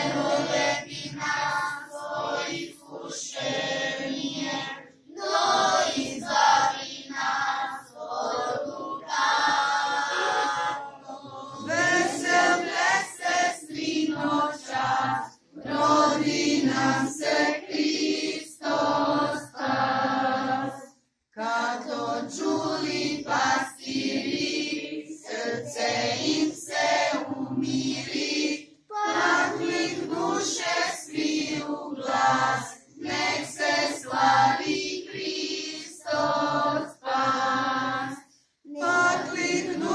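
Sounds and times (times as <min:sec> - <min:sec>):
choir singing unaccompanied: 0:00.0 - 0:39.9.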